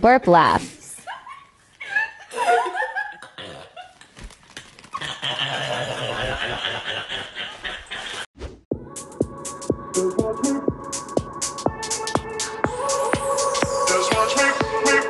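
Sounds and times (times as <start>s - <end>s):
woman's loud burp laugh: 2.5s - 4.0s
electronic music with steady beat: 8.7s - 15.0s.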